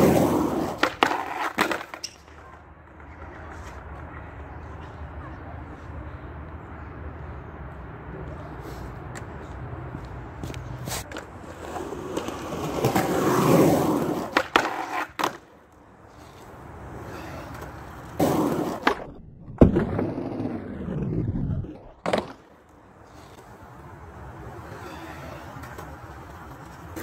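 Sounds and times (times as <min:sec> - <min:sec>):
skateboard clacking: 0:00.0 - 0:05.6, 0:10.5 - 0:21.1, 0:21.8 - 0:24.7, 0:25.3 - 0:27.0
skateboard wheels rolling on concrete: 0:00.0 - 0:27.0.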